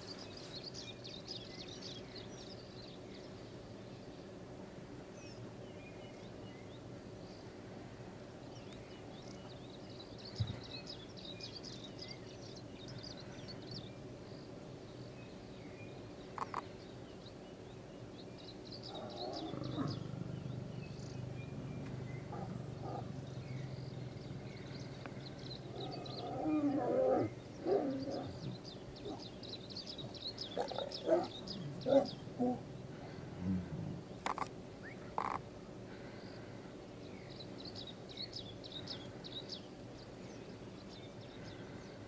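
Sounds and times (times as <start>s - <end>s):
lions growling: 19.0s - 28.6s, 30.6s - 34.4s.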